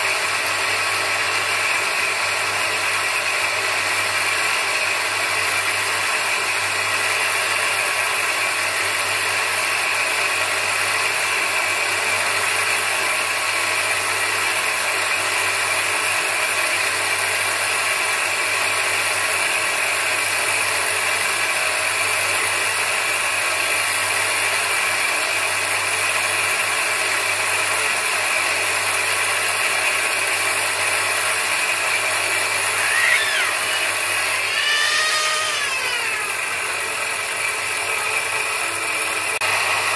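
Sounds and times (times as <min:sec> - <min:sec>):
bench grinder humming: 0:00.0 - 0:39.9
grinding wheel sanding stone: 0:26.9 - 0:39.9.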